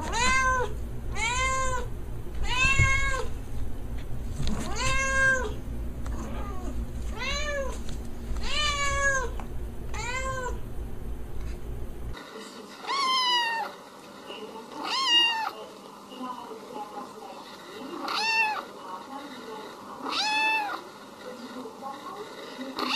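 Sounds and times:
cat meowing: 0.0 - 3.3, 4.6 - 5.6, 6.2 - 7.8, 8.4 - 10.6, 12.8 - 13.7, 14.8 - 15.6, 18.0 - 18.6, 20.0 - 20.8
kitten mewing: 0.0 - 3.3, 4.6 - 5.6, 8.4 - 10.6
low hum: 0.0 - 12.2.

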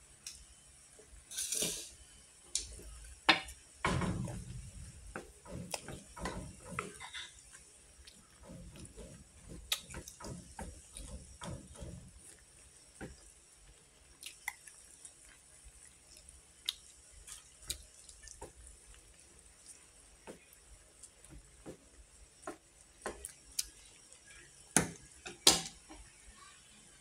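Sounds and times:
broth simmering in a pot: 0.0 - 27.0.

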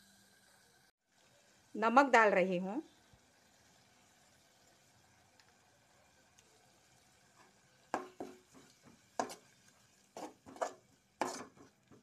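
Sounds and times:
metal spoon scraping a pot: 10.2 - 11.7.

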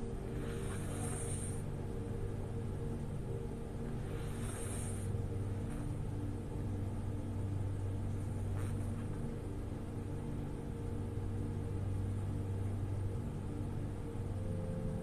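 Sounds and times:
woman snoring: 0.2 - 1.7, 4.0 - 6.0, 8.4 - 9.2.

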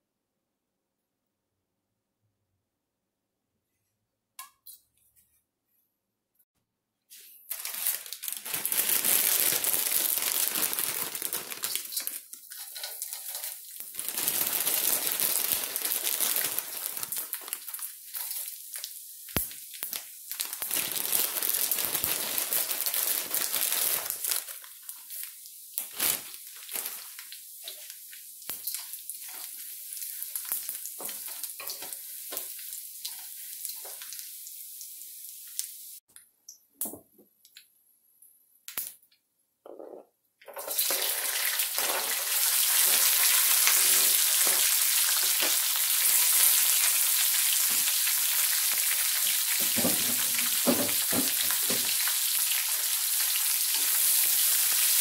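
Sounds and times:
fish sizzling in hot oil: 7.5 - 36.0, 40.6 - 55.0.

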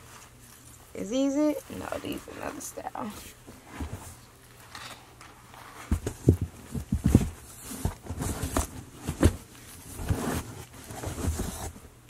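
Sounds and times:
items thumping against cardboard: 5.7 - 11.8.

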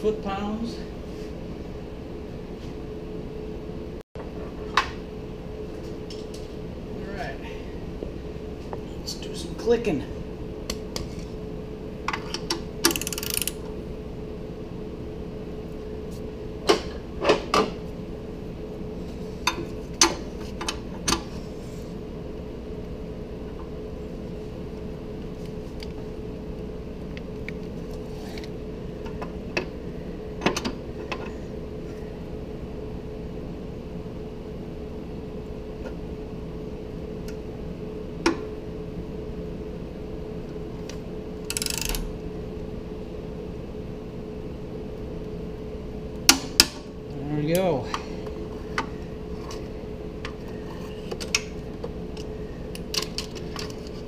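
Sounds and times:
steady faint hum: 0.0 - 54.0
torque wrench clicks: 12.9 - 13.6, 41.5 - 42.1.

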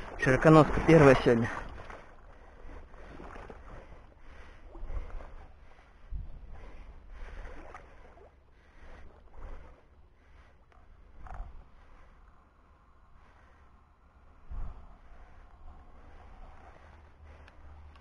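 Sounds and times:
wind rumble on microphone: 0.0 - 10.1, 10.7 - 18.0
wading splashes in water: 0.0 - 12.2.

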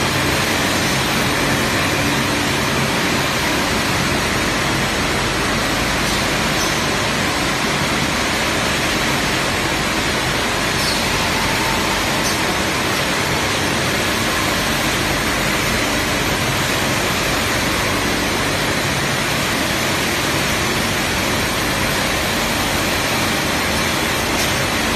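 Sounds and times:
tube mill machine din: 0.0 - 24.9.

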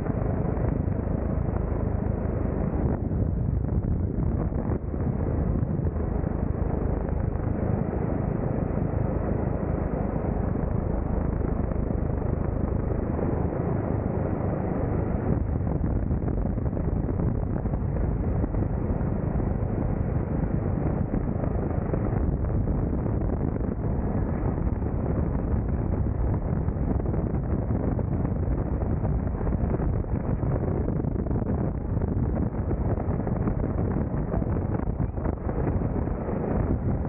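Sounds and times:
helicopter hovering: 0.0 - 26.8.

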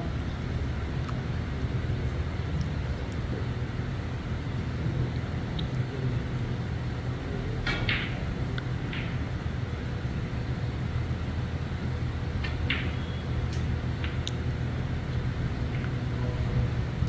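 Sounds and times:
steady low hum: 0.0 - 17.0
snooker balls clicking: 7.6 - 9.3, 12.4 - 16.0.

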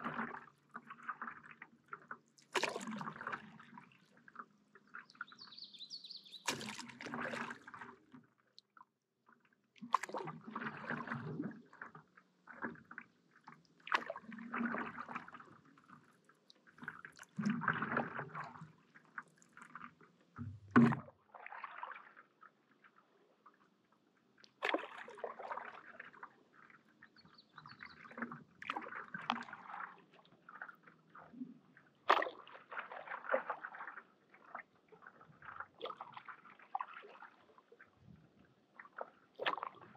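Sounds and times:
paddle splashing in water: 0.0 - 8.4, 9.8 - 22.5, 24.5 - 39.9
paddle thump: 20.4 - 21.1.

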